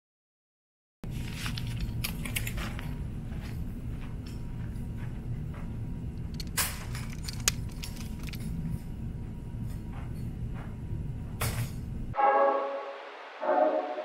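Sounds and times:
low room hum: 1.1 - 14.0
metal clinking and rattling: 6.3 - 8.6
music with brass chords: 12.2 - 14.0.

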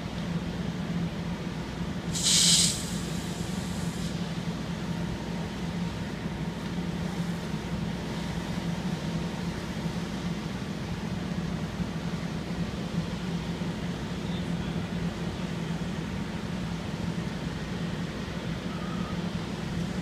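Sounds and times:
vehicle engines idling: 0.0 - 20.0
short loud hiss: 2.1 - 4.2.

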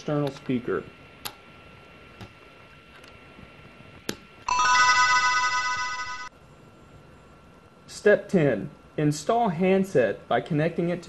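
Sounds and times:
electronic chime arpeggio: 4.5 - 6.3.

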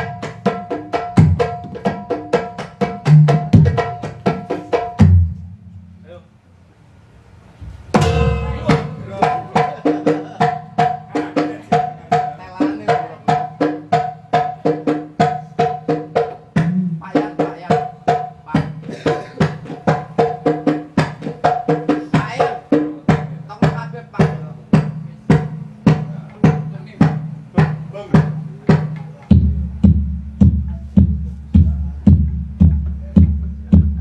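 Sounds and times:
hand-struck drums: 0.0 - 6.2, 7.6 - 34.0
ringing pitched gong notes: 8.0 - 9.6.

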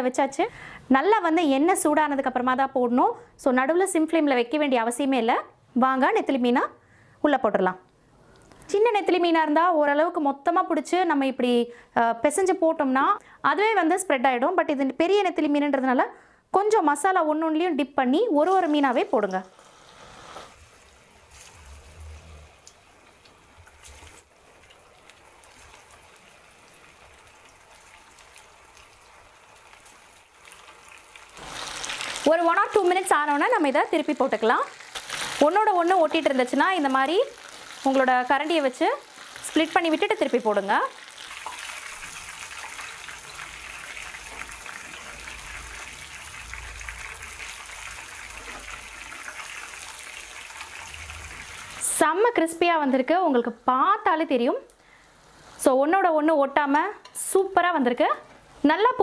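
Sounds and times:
fish deep-frying in oil: 18.6 - 51.9.

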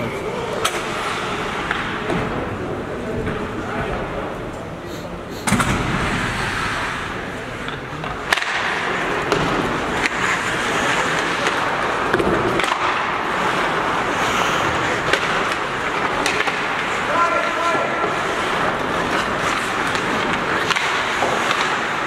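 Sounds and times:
hockey sticks and puck clacking: 0.6 - 2.4, 7.6 - 22.0
skate blades scraping ice: 5.4 - 22.0.

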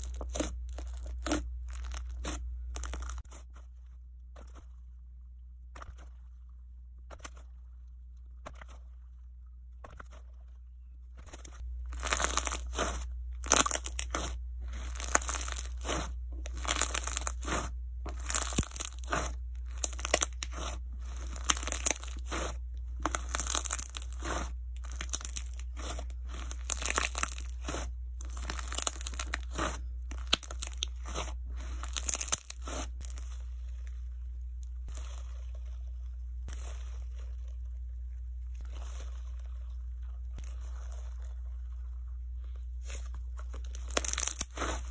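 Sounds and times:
slime squishy crackles: 0.0 - 3.4, 11.2 - 34.0, 38.5 - 44.9
steady low hum: 0.0 - 44.9.

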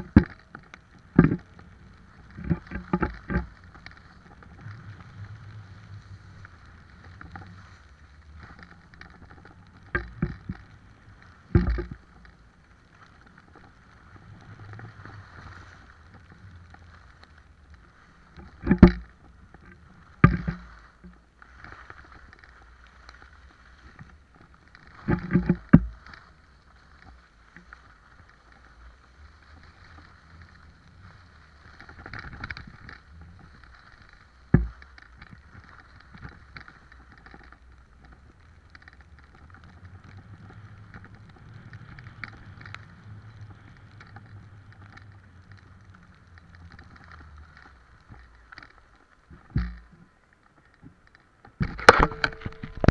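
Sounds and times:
low rumble: 0.0 - 36.2
skis scraping on snow: 0.0 - 51.4.

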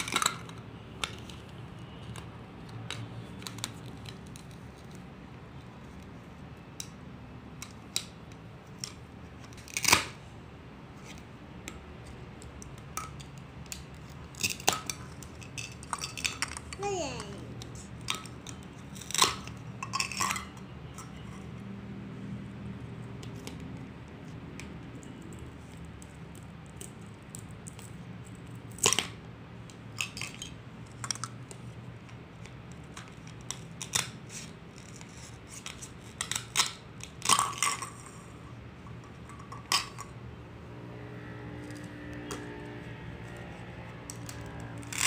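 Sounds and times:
plastic toys tapping and clacking: 0.0 - 5.1, 11.1 - 21.4, 23.2 - 40.2.

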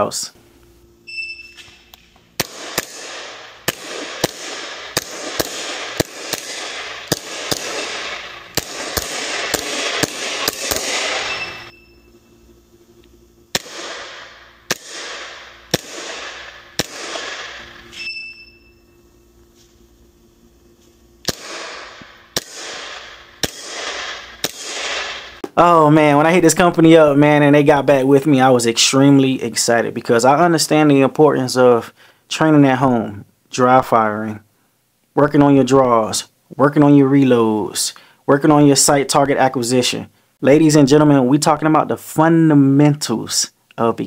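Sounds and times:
high electronic beep: 1.0 - 1.7, 11.2 - 12.3, 18.0 - 18.9
airsoft gun shots: 2.4 - 11.7, 13.5 - 18.1, 21.2 - 25.6.

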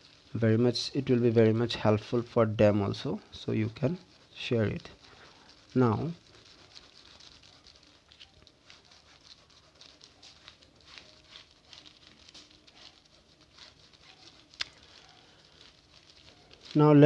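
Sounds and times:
scratchy rubbing on plastic: 0.0 - 17.0.

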